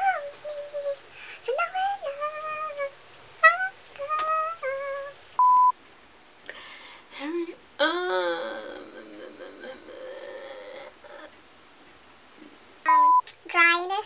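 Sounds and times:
woman singing unaccompanied: 0.0 - 5.2, 7.1 - 11.4
electronic beep: 12.9 - 13.2.

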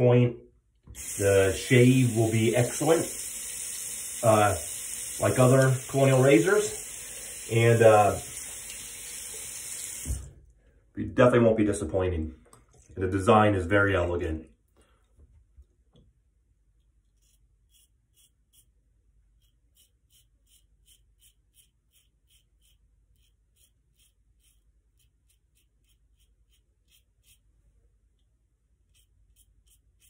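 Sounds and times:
razor scraping stubble: 17.0 - 27.5, 28.8 - 30.0.

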